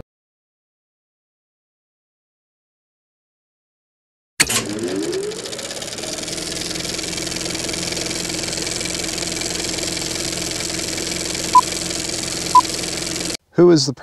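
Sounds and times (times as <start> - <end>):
electrical hum: 4.5 - 13.4.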